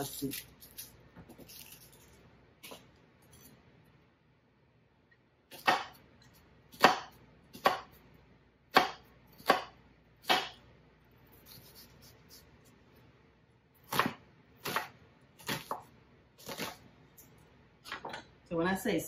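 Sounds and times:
knife chopping onion on board: 0:05.5 - 0:06.0, 0:06.7 - 0:08.0, 0:08.7 - 0:10.6, 0:13.8 - 0:16.8.

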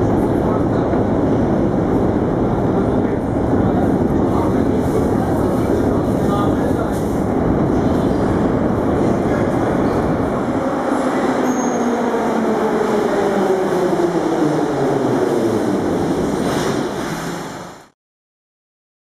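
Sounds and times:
subway train wheels rumbling: 0:00.0 - 0:18.0.

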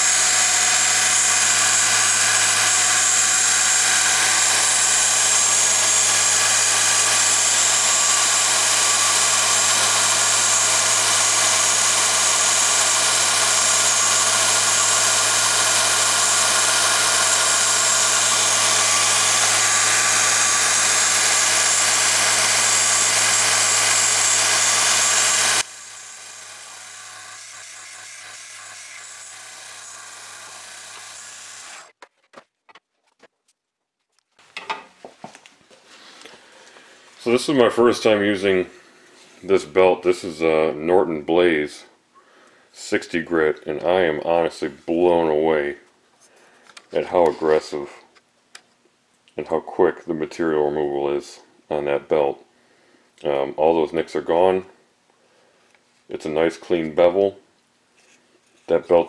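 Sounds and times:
belt grinder grinding steel: 0:00.0 - 0:32.0.

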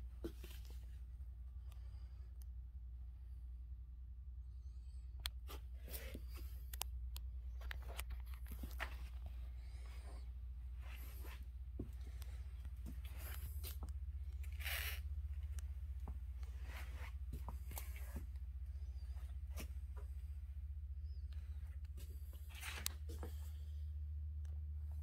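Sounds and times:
steady low hum: 0:00.0 - 0:25.0
clothing rustling: 0:07.5 - 0:20.2
footsteps: 0:07.8 - 0:18.4.

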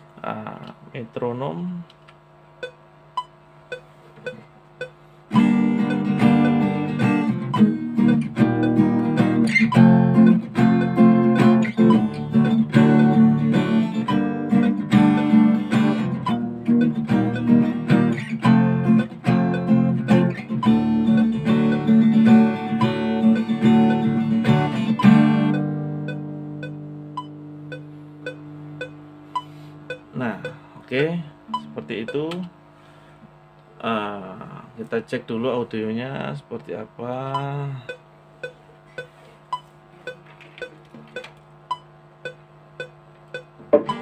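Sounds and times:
metronome clicking: 0:02.6 - 0:30.6, 0:31.5 - 0:32.5, 0:37.3 - 0:44.0
acoustic guitar chords: 0:05.3 - 0:32.3, 0:42.2 - 0:44.0.

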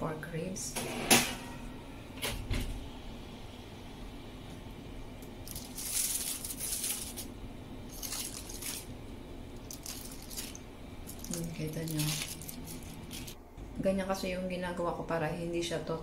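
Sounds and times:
aluminium foil crinkling: 0:05.2 - 0:13.4.

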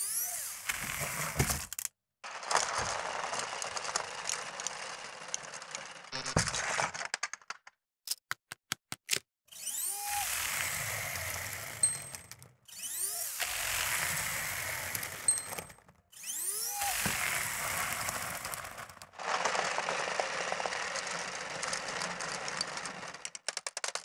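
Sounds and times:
plastic tracks and gears rattling: 0:00.0 - 0:07.7, 0:09.5 - 0:24.0
flywheel whirring: 0:02.4 - 0:06.1, 0:09.5 - 0:23.5.

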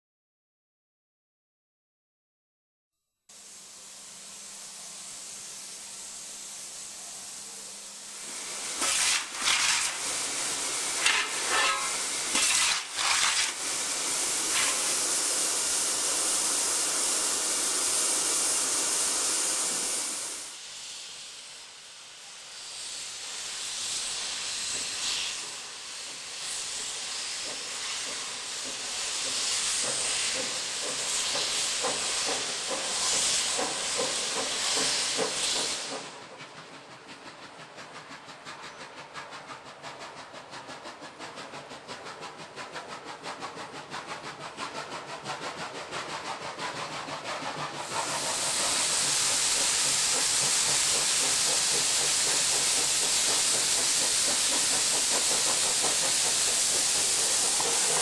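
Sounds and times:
steam locomotive hissing: 0:03.3 - 0:58.0.

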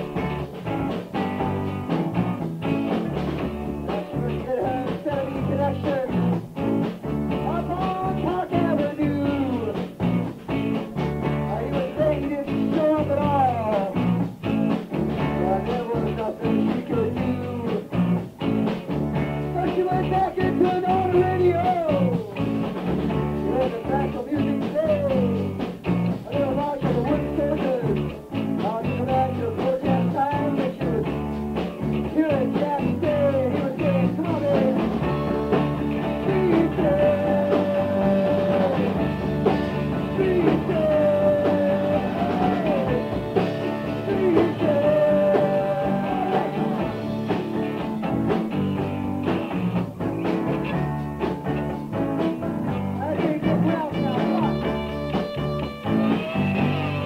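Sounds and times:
rock band playing: 0:00.0 - 0:57.0
lead guitar bending high notes: 0:53.5 - 0:57.0.

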